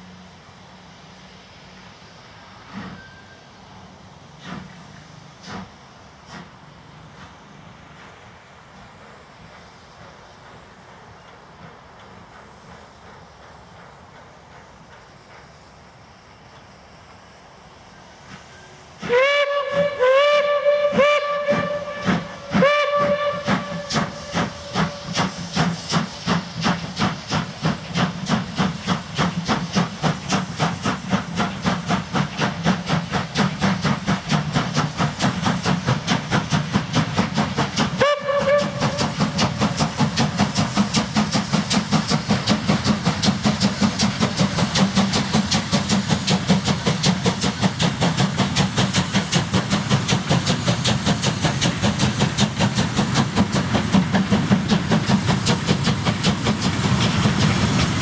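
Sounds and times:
locomotive exhaust chuffs: 0.3s - 17.1s, 17.7s - 58.0s
steam locomotive whistle blasts: 2.7s - 3.6s, 18.5s - 25.5s, 37.9s - 39.6s.

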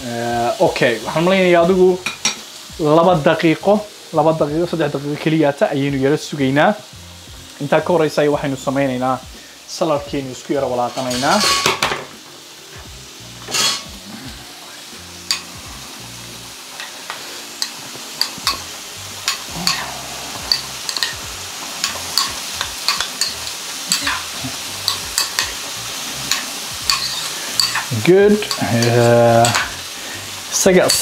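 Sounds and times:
potatoes sizzling in a pan: 0.0s - 31.0s
metal spoon clinking in bowl: 26.3s - 27.9s.

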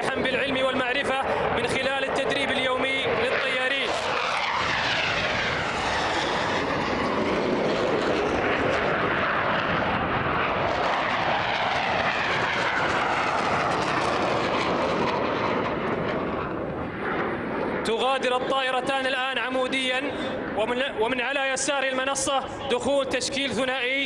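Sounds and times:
jet engines roaring: 0.0s - 24.0s
jet whine falling in pitch: 1.7s - 18.8s.

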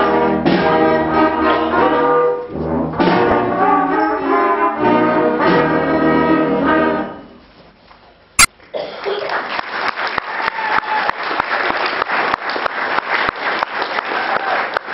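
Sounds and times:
brass note: 3.0s - 7.3s
audience applause: 9.0s - 14.9s.

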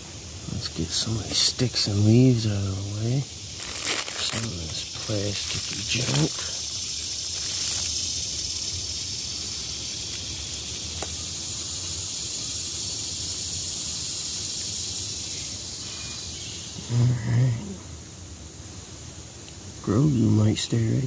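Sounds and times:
insects droning: 0.0s - 21.0s
faint clicks of plastic scraps: 3.6s - 8.4s, 10.1s - 11.2s.

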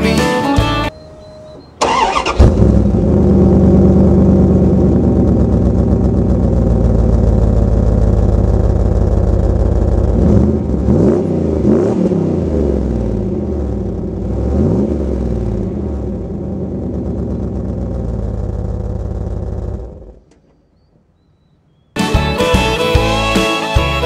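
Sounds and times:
pickup engine idling and revving: 2.4s - 20.3s.

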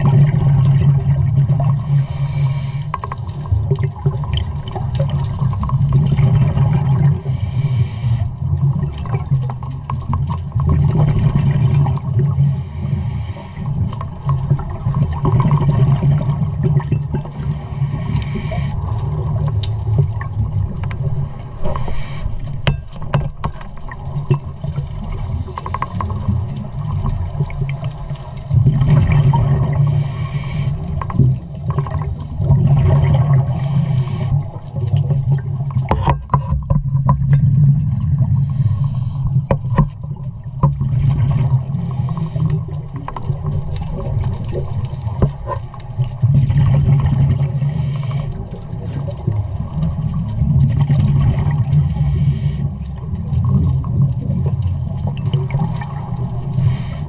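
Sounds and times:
exhaled bubbles rumbling underwater: 0.0s - 57.0s
regulator air hisses: 1.8s - 3.0s, 7.1s - 8.3s, 12.4s - 13.8s, 17.3s - 18.8s, 21.3s - 22.4s, 29.8s - 30.8s, 33.4s - 34.4s, 38.3s - 39.3s, 41.8s - 42.5s, 47.5s - 48.4s, 51.8s - 52.6s, 56.6s - 57.0s.

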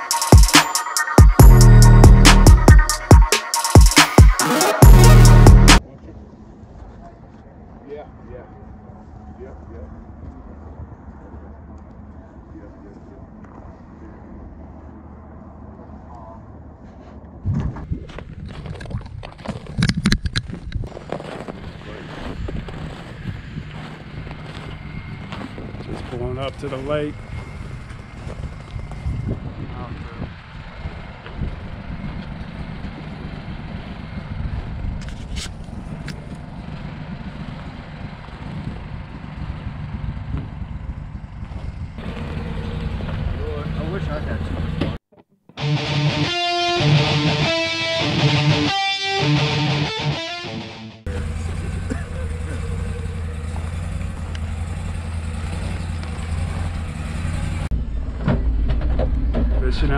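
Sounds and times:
vehicle rumbling on ice: 12.8s - 45.0s, 51.0s - 59.9s
engine idling: 51.0s - 59.9s.

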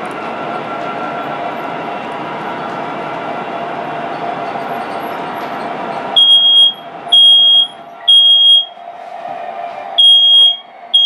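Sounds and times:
smoke alarm beeping: 6.2s - 8.8s, 10.0s - 11.0s.

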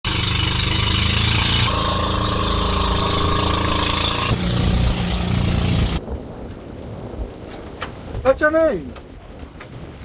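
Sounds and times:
boat engine running: 0.0s - 6.0s.

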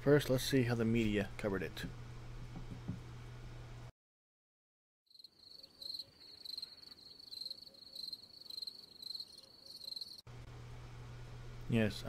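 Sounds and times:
crickets chirping: 5.1s - 10.3s.

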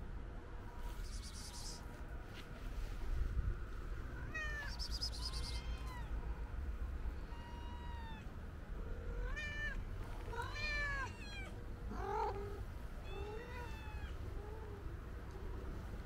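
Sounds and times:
cats meowing: 4.2s - 6.2s, 7.1s - 8.3s, 9.0s - 14.9s.

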